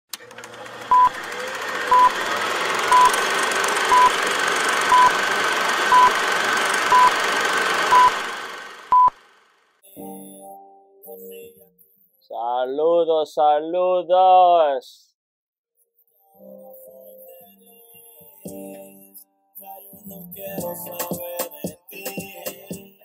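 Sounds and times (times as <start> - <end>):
film projector rattling: 0.1 - 9.6
short high beeps: 1.9 - 2.1, 2.9 - 3.2, 3.9 - 4.1, 4.9 - 5.1, 5.9 - 6.1, 6.9 - 7.1, 7.9 - 8.1, 8.9 - 9.1.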